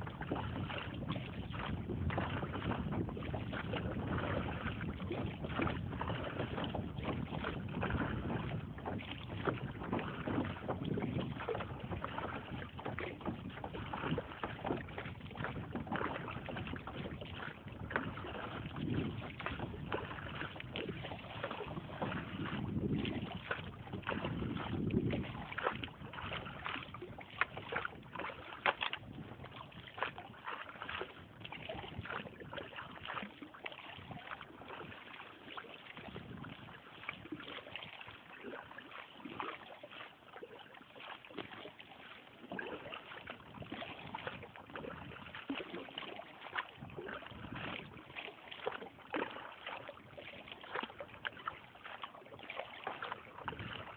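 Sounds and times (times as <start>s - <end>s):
wind buffeting microphone: 0.0s - 33.2s, 35.9s - 38.0s, 43.2s - 45.6s, 46.7s - 48.2s, 53.2s - 53.9s
paddle splashing and dripping: 0.0s - 53.9s.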